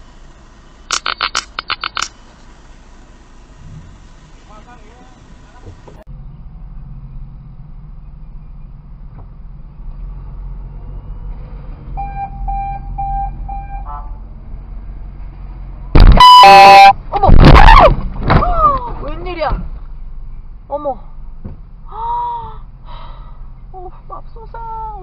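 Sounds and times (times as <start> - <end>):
short beeps: 12.0 - 13.9, 16.0 - 17.0
car horn blast: 12.0 - 14.2, 16.0 - 17.0
loud shouting: 17.3 - 17.9.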